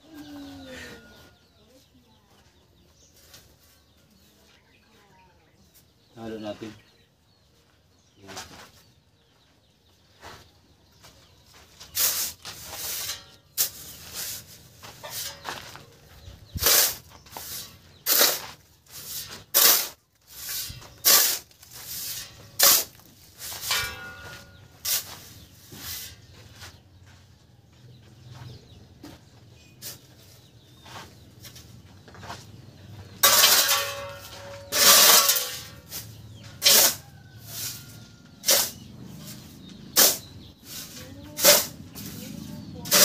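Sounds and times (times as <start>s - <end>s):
shovel scraping sand and cement: 11.6s - 26.9s, 29.8s - 32.4s, 33.2s - 43.0s.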